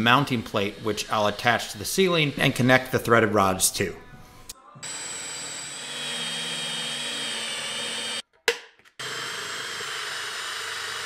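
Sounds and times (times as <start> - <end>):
power drill boring through metal: 4.8 - 8.2, 9.0 - 11.0.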